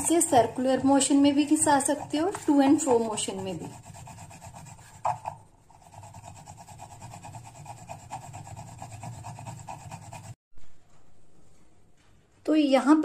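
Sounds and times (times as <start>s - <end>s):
nutmeg scraping on grinding plate: 0.0s - 4.8s.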